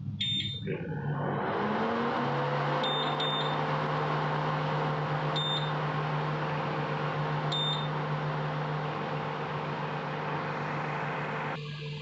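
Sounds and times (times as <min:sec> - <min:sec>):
short high beeps: 0:00.2 - 0:00.7, 0:02.8 - 0:03.6, 0:05.4 - 0:05.7, 0:07.5 - 0:07.9
cooling fan hum: 0:01.4 - 0:12.0.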